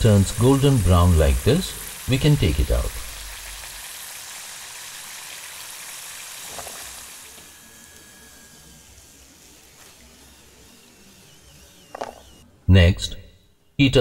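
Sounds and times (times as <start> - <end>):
chicken sizzling in hot oil: 0.0 - 9.6.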